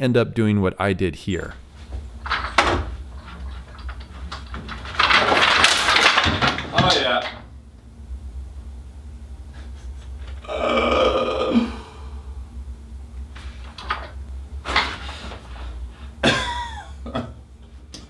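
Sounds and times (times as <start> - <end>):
wood creaking: 1.5 - 7.5
man grunting: 10.4 - 12.2.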